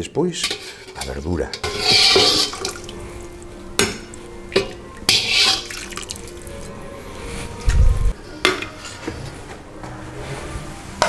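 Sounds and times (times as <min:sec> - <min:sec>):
broth splashing in a pot: 0:01.6 - 0:06.7.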